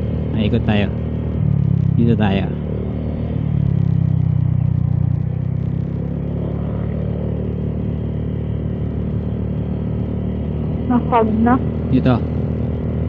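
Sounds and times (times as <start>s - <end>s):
road noise: 0.0s - 13.0s
motor scooter engine running: 6.1s - 13.0s.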